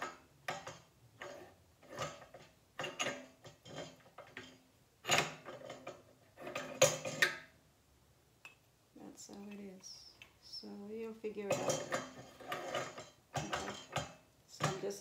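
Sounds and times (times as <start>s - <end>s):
metal scraping and clicking: 0.0s - 7.5s, 11.4s - 15.0s.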